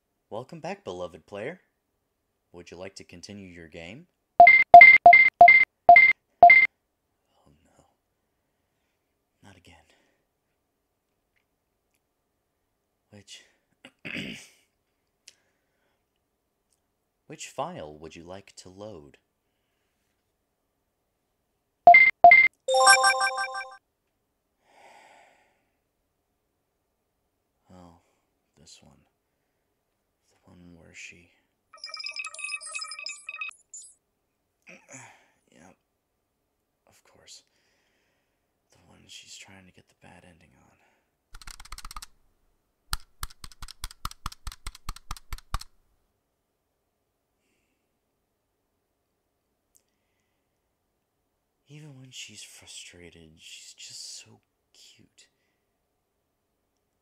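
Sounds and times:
computer keyboard typing: 4.4s - 6.7s, 21.9s - 23.8s, 41.4s - 42.1s, 42.9s - 45.7s
electronic confirm chime: 4.4s - 6.7s, 21.9s - 23.8s, 31.8s - 33.9s
short cursor beeps: 4.4s - 6.7s, 21.9s - 23.8s, 31.8s - 34.0s.

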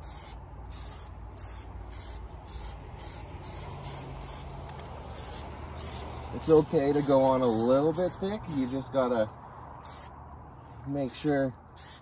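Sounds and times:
aerosol can spraying hiss: 0.0s - 4.5s, 5.1s - 8.8s, 11.1s - 12.0s.

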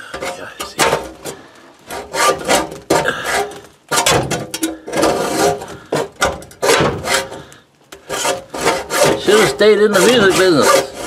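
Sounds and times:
hacksaw sawing through metal: 1.9s - 7.4s, 8.0s - 11.0s.

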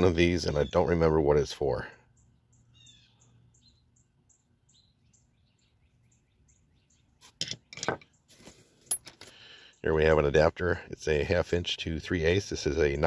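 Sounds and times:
faint bird chirps: 0.0s - 8.7s
metal hand tools clattering: 7.4s - 8.0s.

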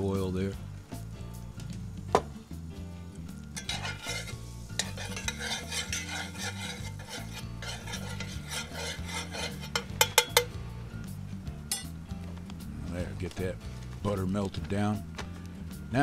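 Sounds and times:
butter and oil sizzling: 0.0s - 12.0s
metal spoon scraping a pan: 3.4s - 10.6s.

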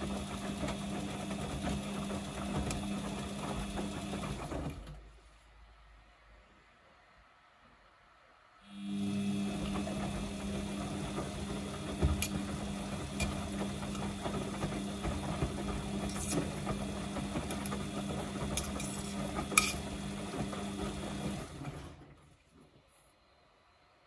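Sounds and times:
washing machine drum tumbling: 9.2s - 22.2s.

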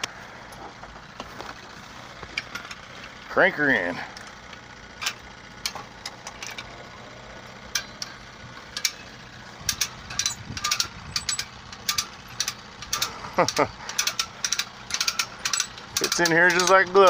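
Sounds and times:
ratchet winch pawl clicking: 4.1s - 17.0s.

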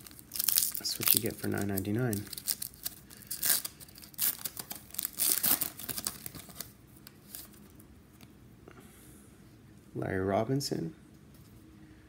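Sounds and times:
wrapper tearing and crinkling: 0.0s - 7.6s.

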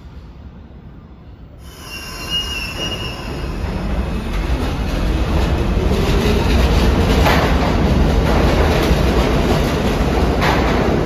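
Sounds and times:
train rumble and wheel clatter: 0.0s - 11.0s
train wheels squealing: 1.6s - 4.0s.

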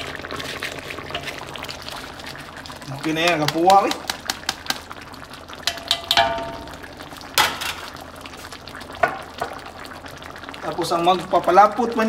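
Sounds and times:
broth simmering and bubbling: 0.0s - 12.0s
utensil knocking against metal wok: 5.7s - 6.8s.

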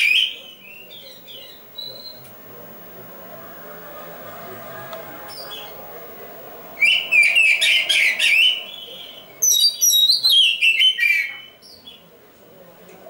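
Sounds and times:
bird singing whistled notes: 6.8s - 12.0s.

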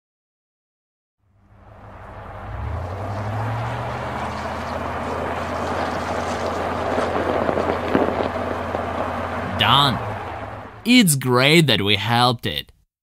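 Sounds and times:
rushing noise: 1.6s - 11.7s
tractor engine under load: 2.5s - 11.6s.

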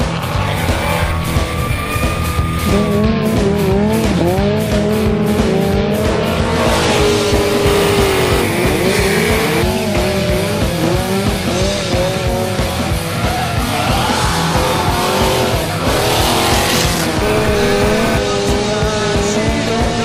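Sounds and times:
motorcycle engines revving: 0.0s - 20.0s
rock music with steady beat: 0.0s - 20.0s
tire squeal: 0.8s - 3.6s, 6.6s - 10.0s, 12.6s - 18.2s.

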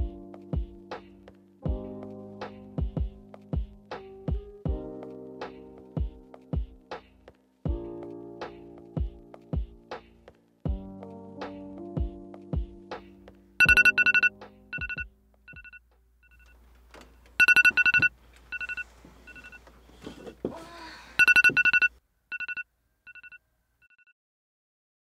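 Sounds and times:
mobile phone beeping: 13.6s - 16.6s, 17.4s - 19.6s, 21.2s - 24.1s.

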